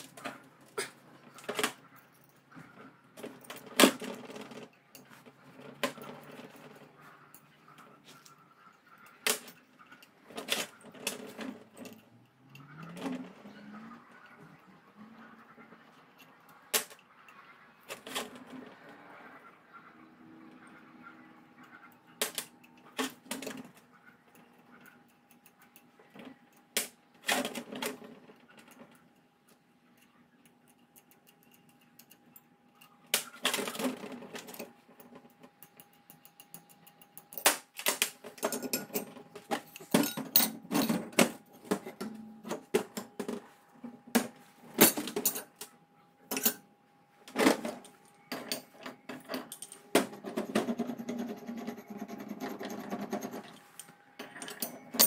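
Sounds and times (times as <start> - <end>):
steel parts clinking and knocking: 9.0 - 13.4, 29.9 - 43.4, 44.2 - 46.7, 47.4 - 55.0.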